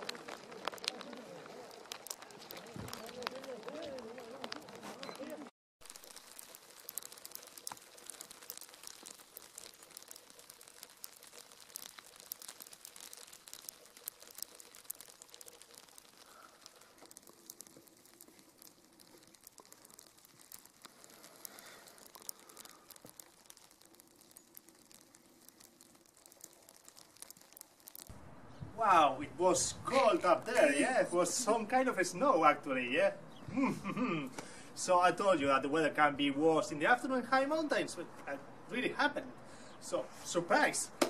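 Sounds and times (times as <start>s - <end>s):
snow pattering on branches: 0.0s - 28.2s, 28.8s - 32.5s.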